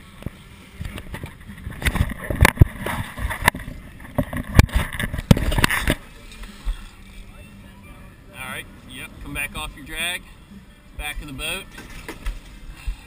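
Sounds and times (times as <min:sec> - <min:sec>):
water noise: 0:00.0 - 0:13.0
camera knocks and bumps: 0:01.1 - 0:06.0.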